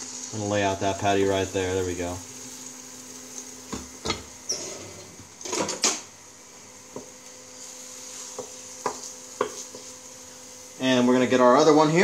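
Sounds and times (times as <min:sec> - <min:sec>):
patty sizzling in frying pan: 0:00.0 - 0:12.0
utensils knocking against pan: 0:08.3 - 0:09.9.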